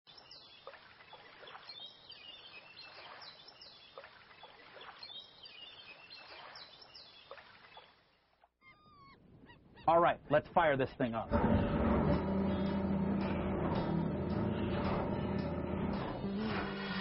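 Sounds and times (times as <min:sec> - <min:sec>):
small birds chirping: 0:00.1 - 0:10.4.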